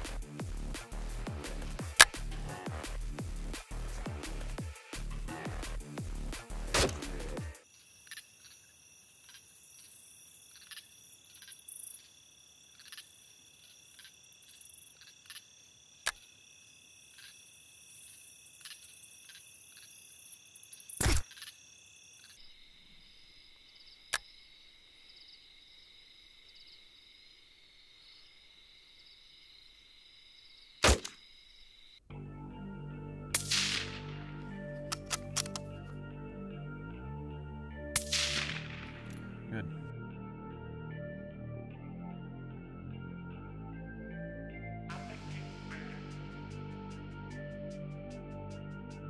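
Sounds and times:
night insects trilling: 7.4 - 32.1
sharp loud cracks: 30.8 - 31.2, 33.4 - 34.4, 38.0 - 39.3.

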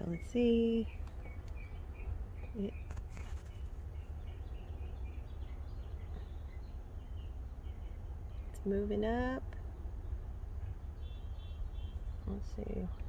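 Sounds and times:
steady low rumble: 0.0 - 13.0
faint bird chirps: 10.0 - 13.0.

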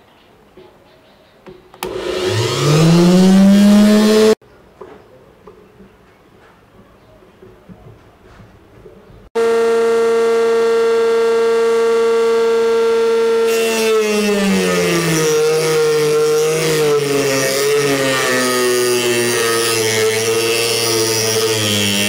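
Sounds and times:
cut-off wheel grinding metal: 1.8 - 4.4, 9.4 - 22.0
rotary tool whine: 1.8 - 4.4, 9.4 - 22.0.

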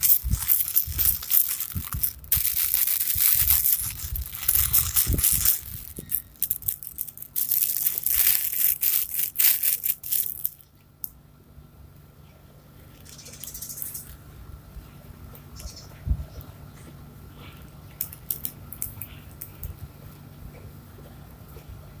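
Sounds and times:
crinkly cloth book rustling: 0.0 - 10.6.

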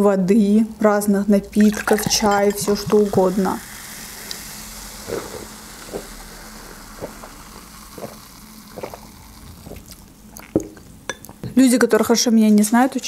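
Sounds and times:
soda fizzing in a glass: 1.4 - 11.3
gulps of drink swallowed: 5.0 - 10.8.

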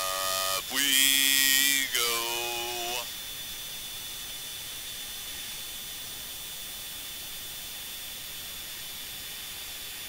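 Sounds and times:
thin high whine: 0.0 - 3.2.

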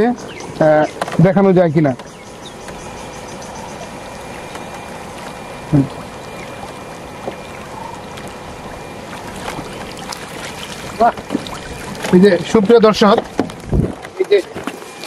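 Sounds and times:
faint steady hum: 0.0 - 15.0
water splashing from net: 4.9 - 12.4.

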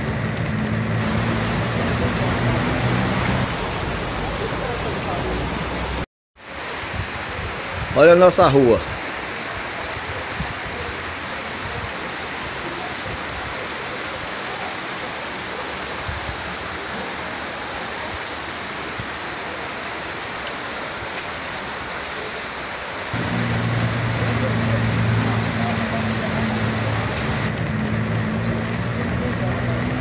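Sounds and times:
floodwater rushing: 0.0 - 30.0
low hum: 23.2 - 28.4.

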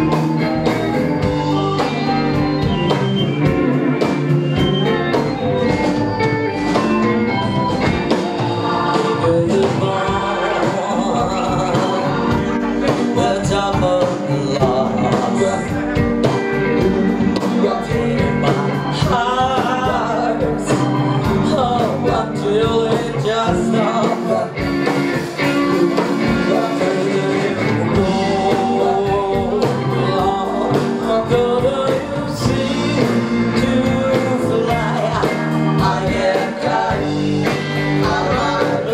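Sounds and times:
drum beat: 0.0 - 38.9
live rock band playing: 0.0 - 38.9
woman singing: 16.8 - 24.6, 25.7 - 37.3, 38.0 - 38.9.

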